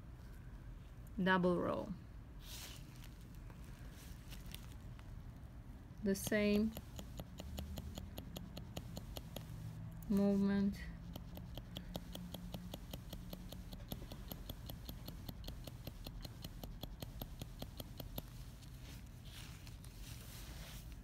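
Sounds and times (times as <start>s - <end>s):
tattoo needle tapping: 6.0s - 18.7s.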